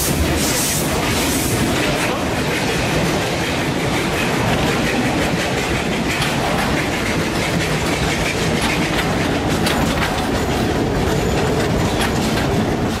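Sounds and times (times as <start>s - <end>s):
wheels rumbling on rail: 0.0s - 13.0s
clicks over rail joints: 4.0s - 13.0s.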